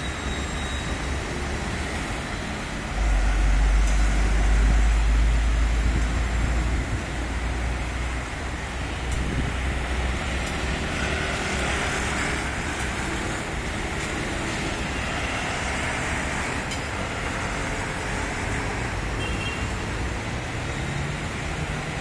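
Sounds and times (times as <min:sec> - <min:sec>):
faint high squeal: 0:00.0 - 0:01.2
city traffic passing: 0:00.0 - 0:22.0.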